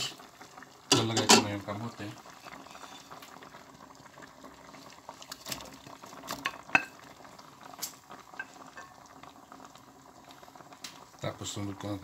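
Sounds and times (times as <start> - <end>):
broth boiling: 0.0 - 12.0
dish clinking against pan: 0.9 - 1.5.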